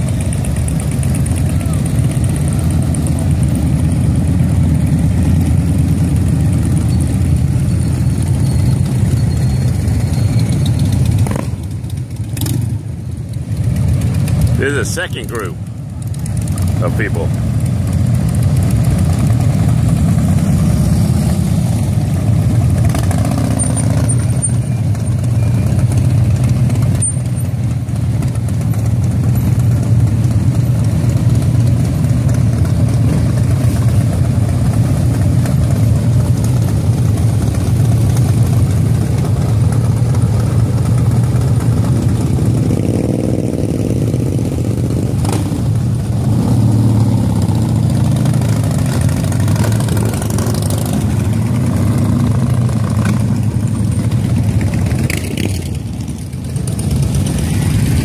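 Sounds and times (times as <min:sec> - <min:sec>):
motorcycles rumbling past: 0:00.0 - 0:58.0.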